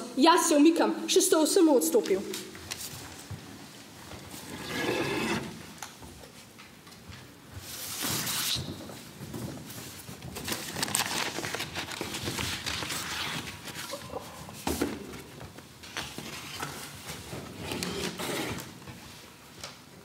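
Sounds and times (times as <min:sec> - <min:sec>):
paper rustling: 0:10.4 - 0:14.0.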